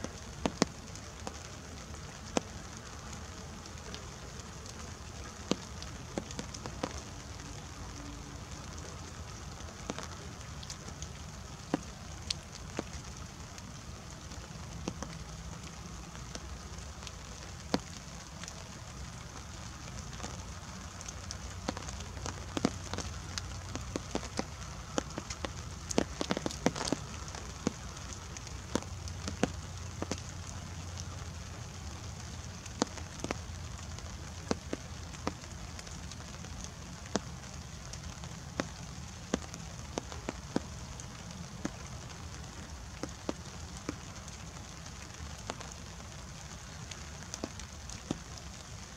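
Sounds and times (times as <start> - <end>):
raindrops tapping: 0.0 - 48.9.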